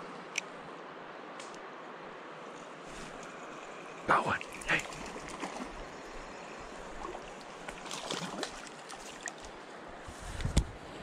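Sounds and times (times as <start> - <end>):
creek water flowing over rocks: 1.9 - 9.9.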